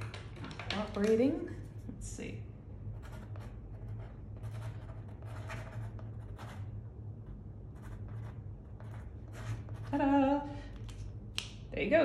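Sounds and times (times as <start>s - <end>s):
steady low hum: 0.0s - 12.0s
pen scratching on paper: 3.0s - 6.7s, 7.7s - 10.1s.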